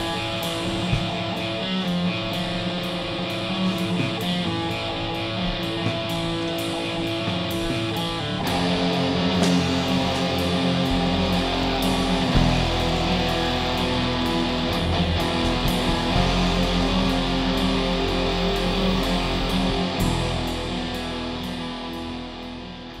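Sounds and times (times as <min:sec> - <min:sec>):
guitar music: 0:00.0 - 0:23.0.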